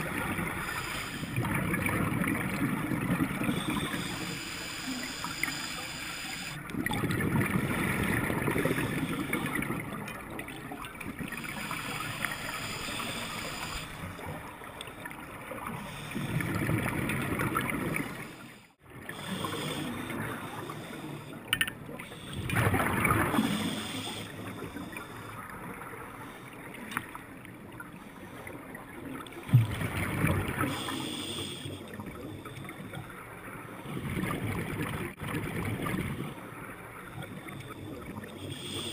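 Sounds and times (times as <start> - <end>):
underwater exhaled bubbles rushing: 0.0 - 4.4, 6.6 - 21.0, 22.0 - 23.9, 29.4 - 30.9, 33.9 - 36.4
gurgling water hiss: 0.0 - 9.9, 11.3 - 14.2, 22.0 - 25.3, 29.9 - 32.0, 37.4 - 38.9.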